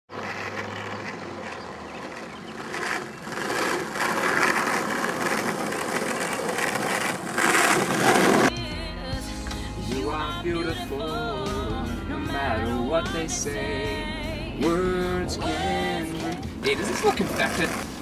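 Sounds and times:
skateboard wheels rolling on asphalt: 0.1s - 8.6s, 15.9s - 18.0s.

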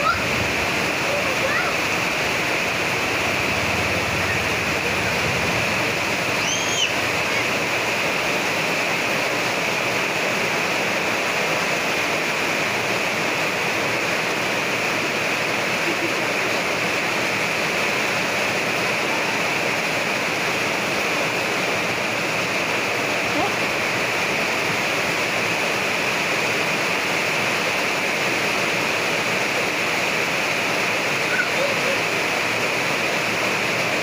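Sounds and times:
child squealing: 0.0s - 0.2s, 6.4s - 7.5s, 31.2s - 32.0s
heavy rain hissing: 0.0s - 34.0s.

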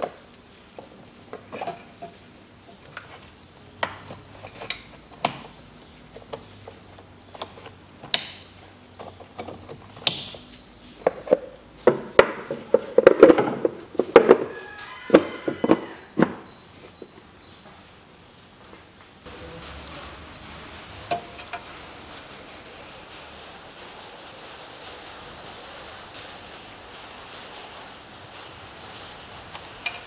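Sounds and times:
faint high chirping: 3.8s - 6.0s, 9.2s - 11.6s, 14.6s - 18.4s, 19.3s - 20.8s, 24.6s - 26.7s, 28.8s - 30.0s.

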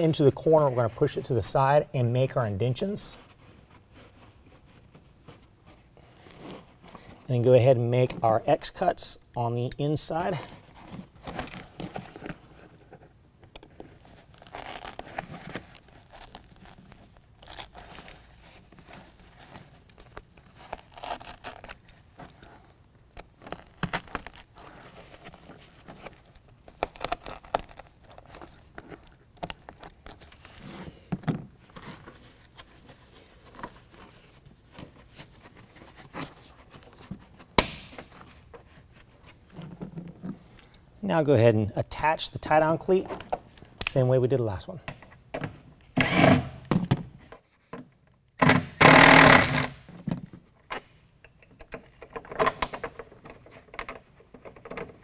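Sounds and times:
foam liner rustling and scraping: 2.7s - 7.4s, 10.4s - 40.4s.

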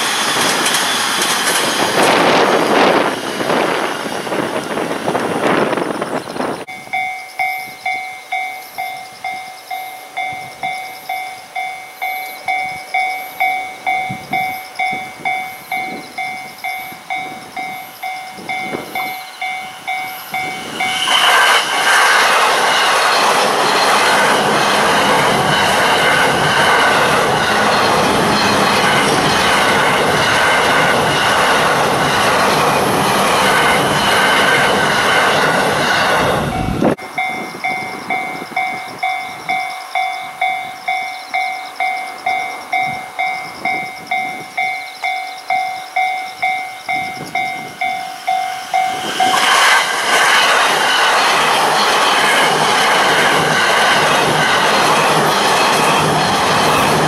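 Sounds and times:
electric train passing: 0.0s - 57.0s
level crossing bell ringing: 6.7s - 21.0s, 36.6s - 49.4s.

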